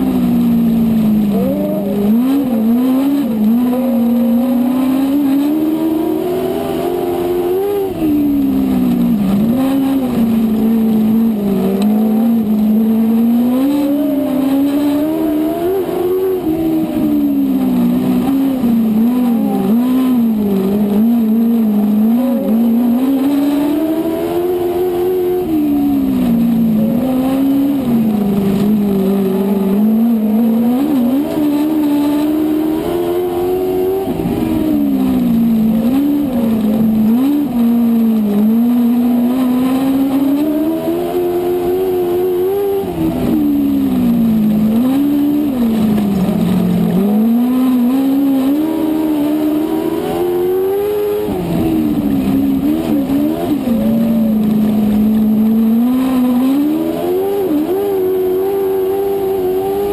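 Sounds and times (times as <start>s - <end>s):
other car engines: 0.0s - 59.9s
racing car engine revving: 0.0s - 59.9s.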